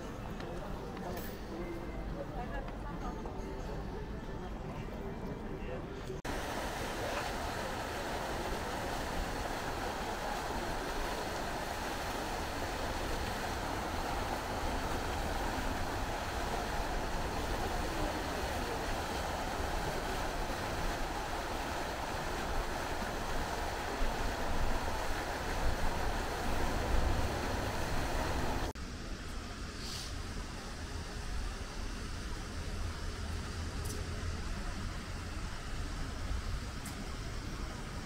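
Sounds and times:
steady rushing noise: 6.2 - 29.2.

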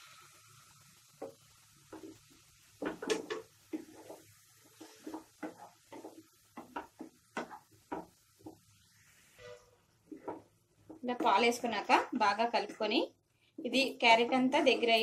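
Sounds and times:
spatula scraping a frying pan: 1.2 - 10.6, 13.7 - 15.0.

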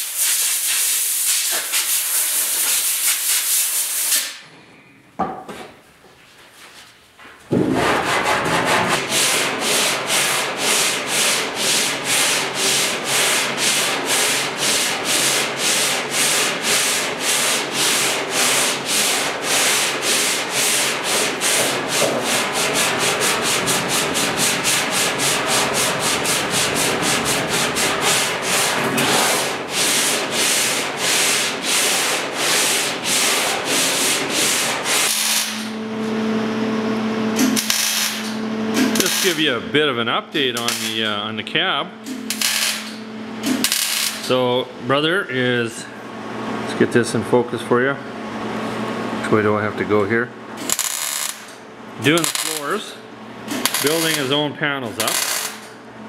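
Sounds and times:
steady hum: 7.4 - 56.0
sanding block strokes: 7.8 - 35.6, 53.7 - 54.4.

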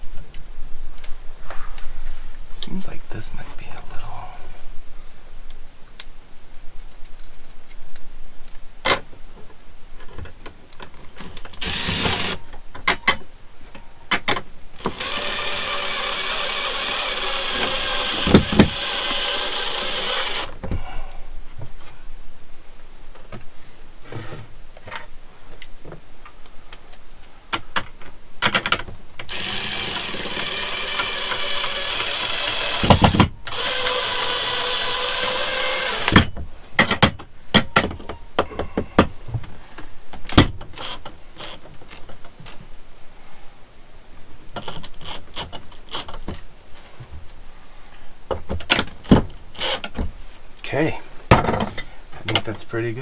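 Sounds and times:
cordless drill driving screws: 11.2 - 12.4, 14.8 - 20.6, 29.3 - 36.4, 44.6 - 46.1, 49.4 - 49.9
drill knock: 11.5 - 12.4, 14.8 - 20.6, 29.3 - 38.1.

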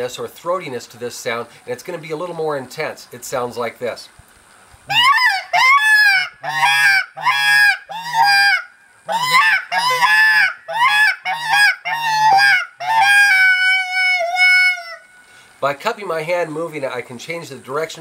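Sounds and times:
predator call wailing cries: 4.9 - 15.1.

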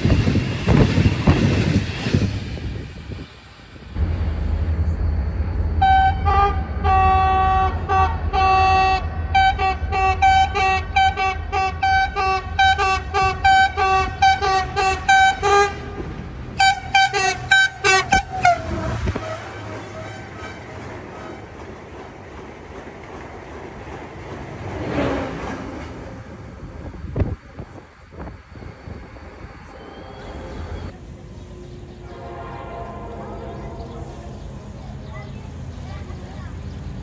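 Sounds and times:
low rumble of train: 0.0 - 37.0
locomotive air horn: 5.8 - 21.4, 32.0 - 34.3.

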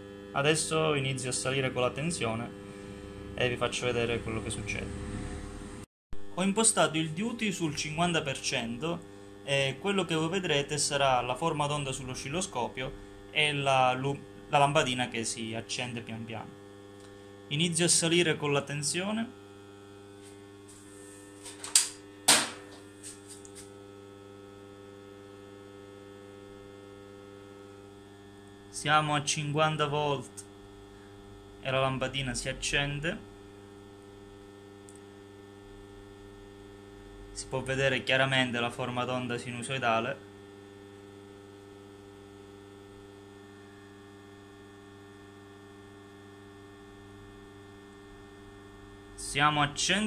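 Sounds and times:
transformer mains hum: 0.0 - 50.0
transformer humming: 0.4 - 5.9.

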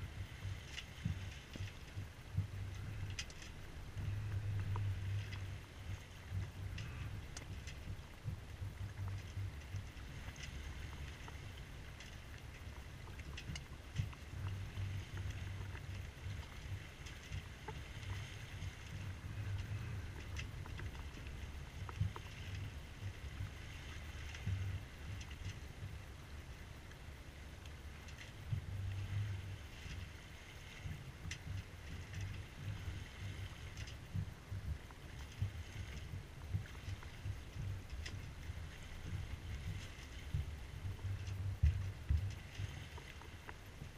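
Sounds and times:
wind buffeting microphone: 0.0 - 26.1
water rushing along hull: 0.0 - 43.9
light ticks: 0.4 - 26.1, 26.8 - 43.9.

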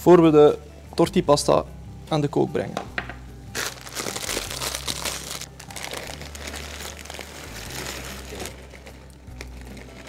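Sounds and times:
plastic packet crinkling: 3.6 - 10.0.

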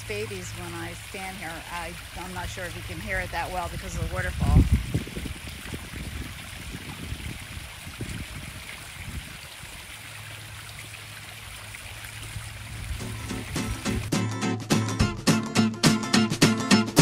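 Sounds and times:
waterfall splashing into pond: 0.0 - 14.2.

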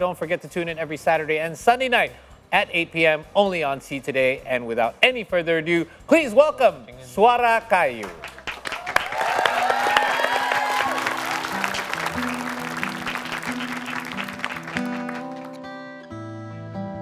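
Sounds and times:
applause: 8.0 - 15.7.

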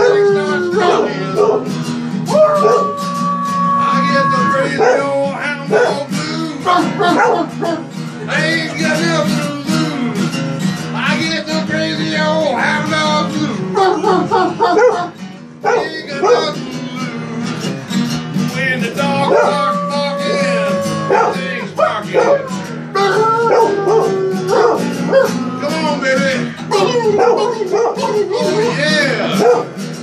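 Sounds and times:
dog barking and howling: 0.0 - 7.9, 13.6 - 17.6, 19.0 - 25.8, 26.7 - 29.8
acoustic guitar strumming blues: 0.0 - 30.0.

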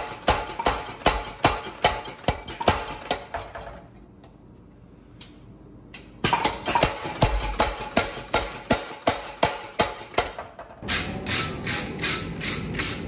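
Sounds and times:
power hammer striking steel: 0.0 - 3.4, 6.3 - 12.2.

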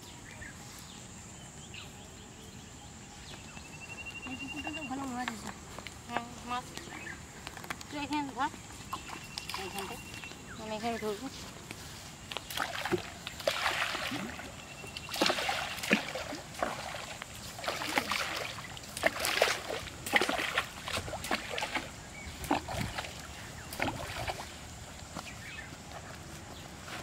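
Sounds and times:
pond water splashing: 4.3 - 27.0.

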